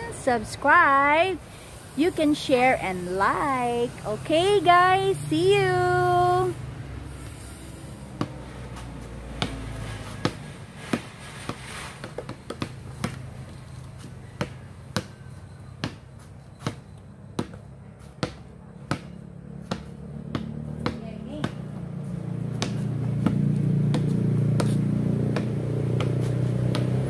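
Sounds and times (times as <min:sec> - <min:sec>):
basketball bouncing on concrete: 0:07.1 - 0:27.0.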